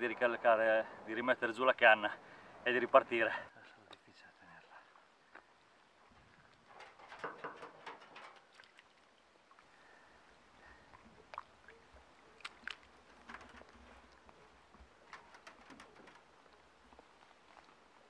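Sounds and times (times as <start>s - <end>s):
water splashing and dripping: 4.9s - 9.8s, 10.6s - 18.0s.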